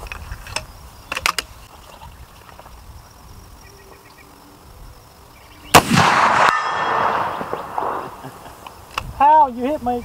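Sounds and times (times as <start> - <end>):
quiet outdoor background: 0.0 - 10.0
rifle shot with long echo: 5.7 - 8.6.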